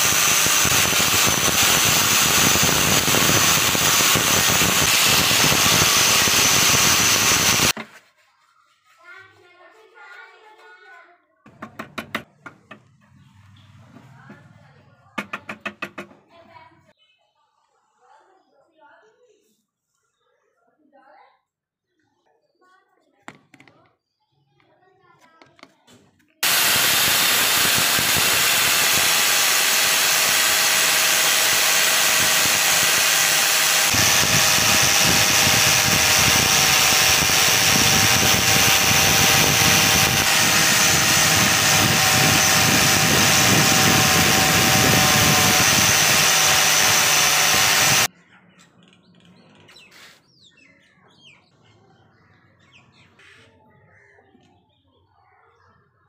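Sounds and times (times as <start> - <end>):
angle grinder buffing metal: 0.0 - 7.8, 26.4 - 48.1.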